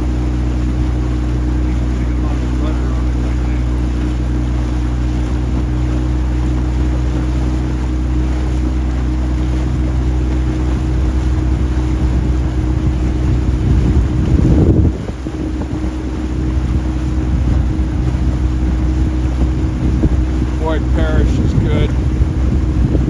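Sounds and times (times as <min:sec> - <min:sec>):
motorboat engine running: 0:00.0 - 0:23.0
water rushing: 0:00.0 - 0:23.0
wind noise: 0:09.7 - 0:23.0.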